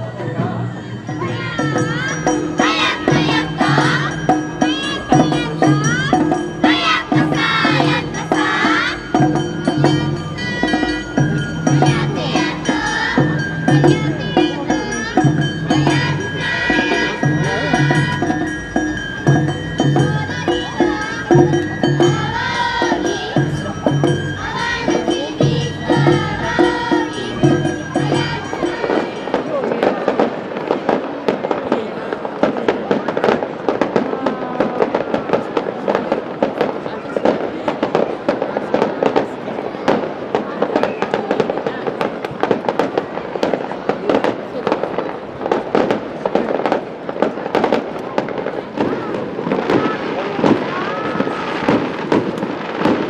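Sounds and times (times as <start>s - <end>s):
festival dance music with beat: 0.0s - 31.8s
high shouted calls: 0.1s - 29.9s
small metal gong clanging: 1.1s - 30.1s.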